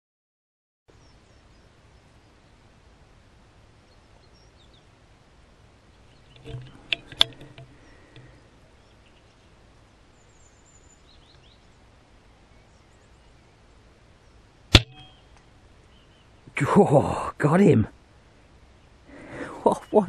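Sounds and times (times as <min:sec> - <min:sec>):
rustle: 0:00.9 - 0:20.0
faint bird chirps: 0:03.8 - 0:04.9, 0:07.6 - 0:16.6
sharp knocks: 0:06.4 - 0:07.7, 0:14.8 - 0:15.1
air rifle shot: 0:14.7 - 0:15.2.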